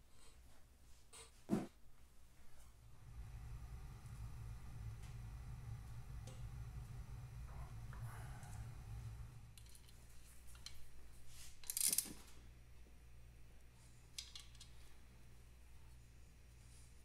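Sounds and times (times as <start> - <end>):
low steady hum: 2.4 - 11.3.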